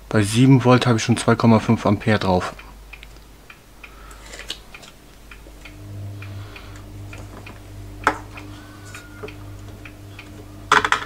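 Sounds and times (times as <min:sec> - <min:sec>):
low electrical hum: 0:00.0 - 0:11.0
faint ticks: 0:05.2 - 0:11.0.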